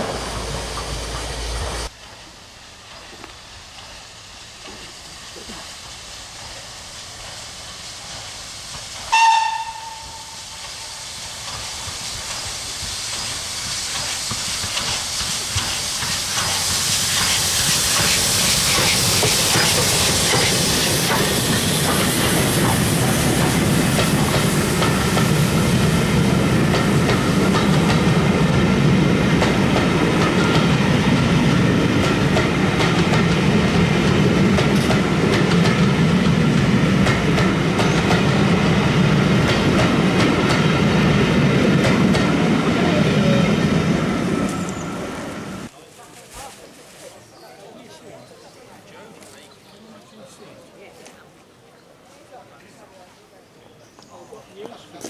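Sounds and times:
clicking train wheels: 0:00.0 - 0:43.0
steam hissing: 0:00.0 - 0:45.7
train coaches rumbling: 0:00.0 - 0:45.7.

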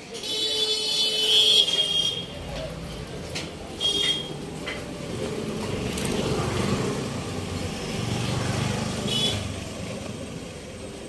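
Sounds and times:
street noise: 0:00.0 - 0:11.0
vehicle engine rumbling past: 0:04.4 - 0:11.0.

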